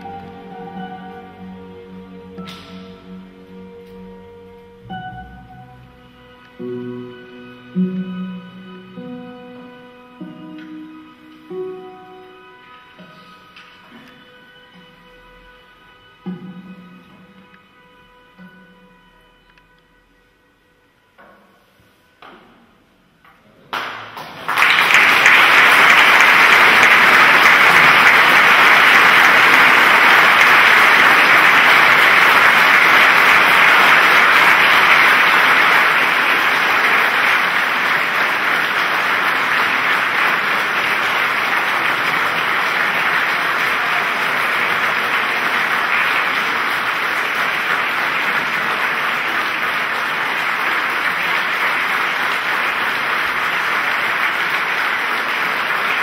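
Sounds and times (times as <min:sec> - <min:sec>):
audience applauding: 0:23.7 - 0:56.0.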